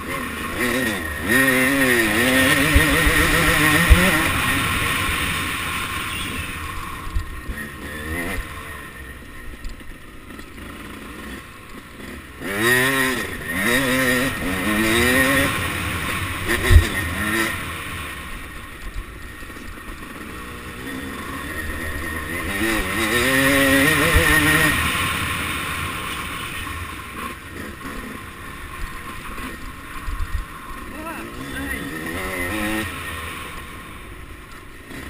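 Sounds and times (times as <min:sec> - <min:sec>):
motorcycle engine revving: 0:00.0 - 0:35.0.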